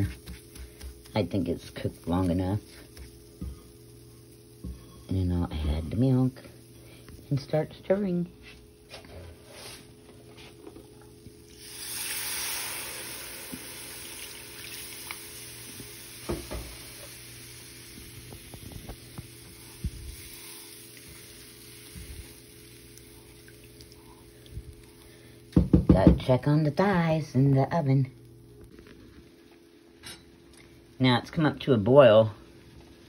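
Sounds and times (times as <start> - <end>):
milk hissing in hot pan: 0.0 - 25.8
gravy sizzling: 0.0 - 33.0
spatula knocking pan: 25.6 - 26.3.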